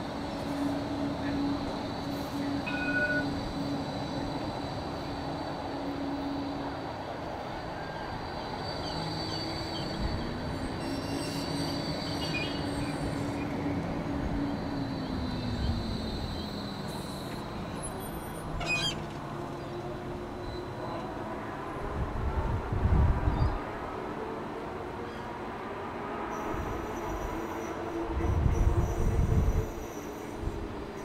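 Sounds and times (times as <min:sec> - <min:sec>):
tram wheels rumbling on rails: 0:00.0 - 0:31.0
high-pitched wheel squeal: 0:00.5 - 0:04.4, 0:15.3 - 0:19.1.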